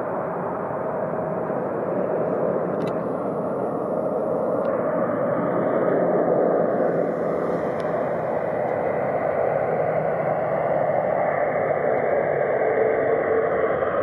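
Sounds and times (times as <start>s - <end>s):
jet airliner roar: 0.0s - 14.0s.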